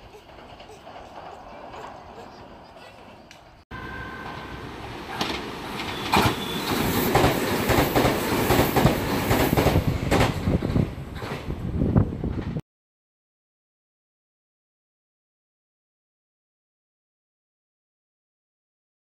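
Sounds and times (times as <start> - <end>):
electric train rumbling: 0.0 - 12.6.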